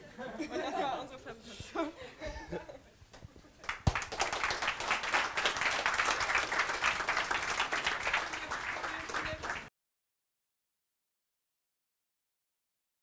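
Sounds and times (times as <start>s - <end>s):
audience applauding: 3.6s - 9.7s.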